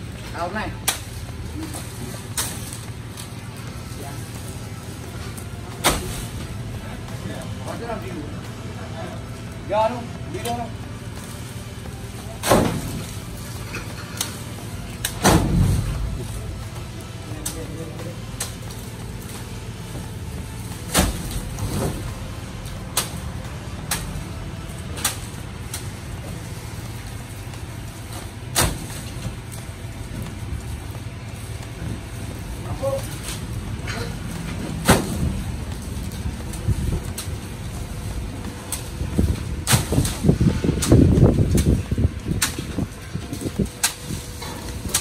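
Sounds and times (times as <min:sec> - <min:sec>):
truck engine idling: 0:00.0 - 0:45.0
machete chopping sugarcane: 0:00.8 - 0:03.3, 0:05.8 - 0:06.4, 0:12.4 - 0:14.3, 0:15.0 - 0:15.9, 0:20.7 - 0:22.1, 0:22.9 - 0:23.2, 0:24.9 - 0:25.9, 0:28.1 - 0:29.4, 0:33.0 - 0:36.2, 0:38.7 - 0:41.8.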